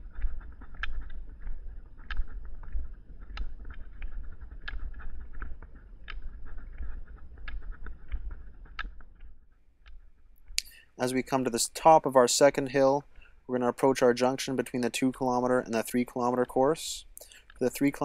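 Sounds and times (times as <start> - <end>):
ski pole tips clicking on asphalt: 0.0 - 10.0.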